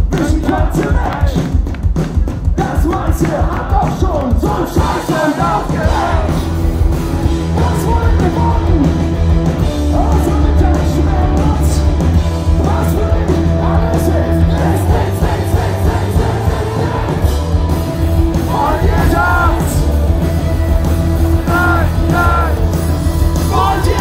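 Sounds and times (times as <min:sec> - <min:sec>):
singer shouting vocals: 0:00.0 - 0:01.5, 0:02.6 - 0:06.6, 0:07.5 - 0:09.0, 0:09.9 - 0:12.0, 0:18.3 - 0:24.0
punk rock band playing live: 0:00.0 - 0:24.0.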